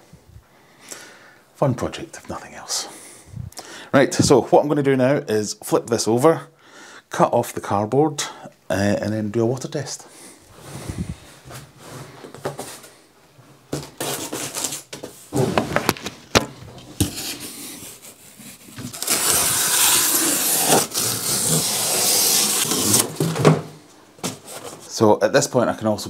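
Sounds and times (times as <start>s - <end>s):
cardboard rustling: 13.7s - 24.9s
utility knife slicing cardboard: 18.8s - 23.2s.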